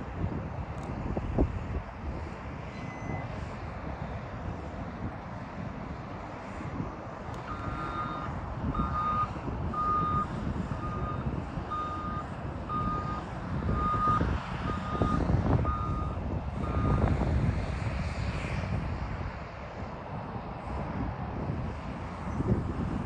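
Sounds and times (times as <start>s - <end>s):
diesel engine rumble: 0.0s - 23.0s
reversing alarm beeping: 2.7s - 3.3s, 7.5s - 17.0s.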